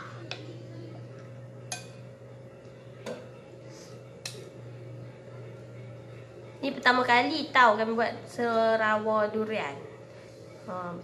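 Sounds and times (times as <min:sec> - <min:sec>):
steady low hum: 0:00.0 - 0:11.0
spoon clicking against bowl: 0:01.7 - 0:02.0.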